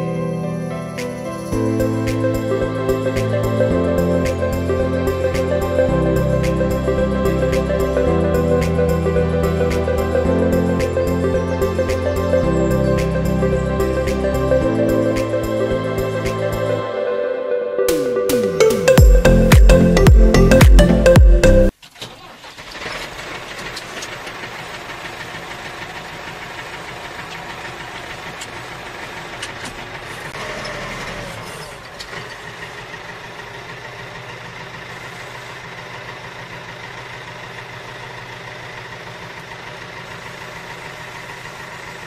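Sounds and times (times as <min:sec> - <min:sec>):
mechanical engine running: 0:23.1 - 0:42.0.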